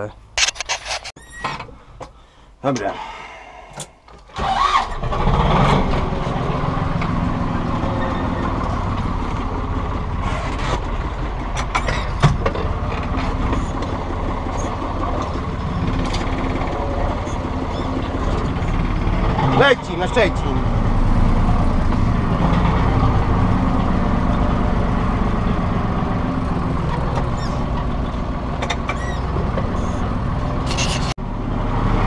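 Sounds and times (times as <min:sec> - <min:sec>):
tractor engine starting and running: 0:03.7 - 0:32.0.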